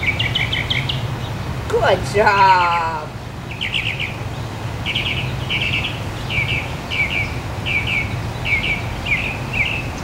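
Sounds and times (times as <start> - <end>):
bird chirping: 0.0 - 10.0.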